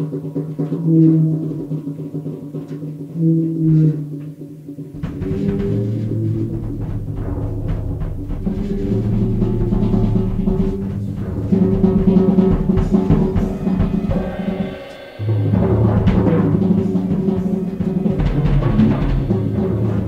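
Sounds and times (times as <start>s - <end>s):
instrumental music with drums: 0.0s - 20.0s
deep bass notes: 4.9s - 20.0s.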